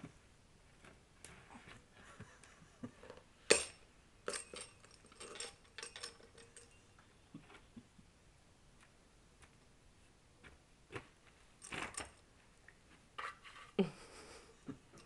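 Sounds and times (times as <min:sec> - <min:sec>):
toys clinking and jingling: 0:03.5 - 0:06.8.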